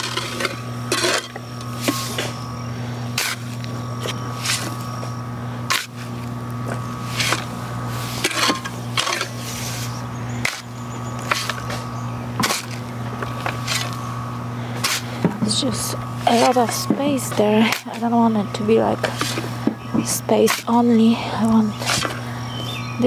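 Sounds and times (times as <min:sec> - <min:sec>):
shovel scraping into soil and rocks: 0:00.0 - 0:02.4, 0:03.1 - 0:04.9, 0:07.0 - 0:10.6, 0:11.2 - 0:11.8, 0:12.4 - 0:14.0, 0:14.8 - 0:15.1, 0:16.2 - 0:16.9, 0:19.0 - 0:19.6, 0:21.8 - 0:22.2
steady hum: 0:00.0 - 0:23.0.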